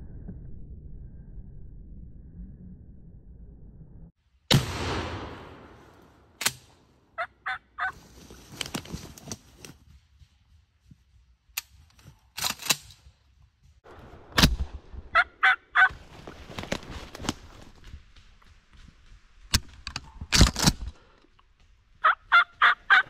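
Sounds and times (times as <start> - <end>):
shotgun shot echoing: 4.5 - 6.7
wild turkey calls: 7.2 - 8.0, 15.2 - 16.0, 22.0 - 23.0.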